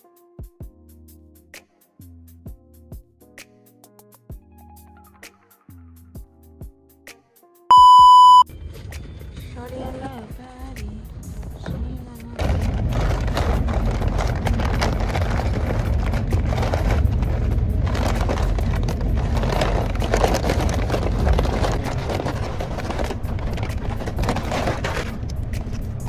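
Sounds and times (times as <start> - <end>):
paper bag rustling and crinkling: 12.4 - 26.0.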